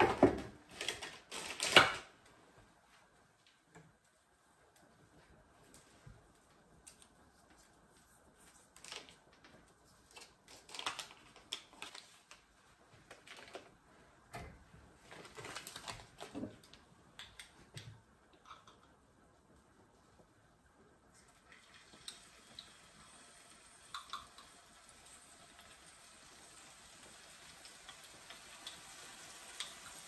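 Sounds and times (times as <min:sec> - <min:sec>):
paper crinkling: 0:06.9 - 0:13.8, 0:15.1 - 0:16.8.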